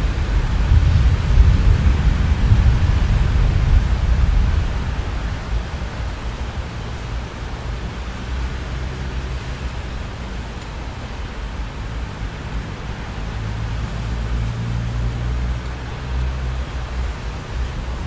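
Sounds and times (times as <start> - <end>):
rain hiss: 0.0 - 18.0
thunder rumble: 0.0 - 18.0.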